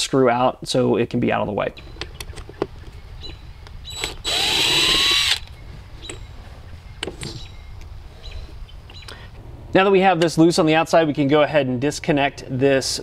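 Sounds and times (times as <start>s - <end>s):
impact driver motor whine: 3.9s - 5.5s.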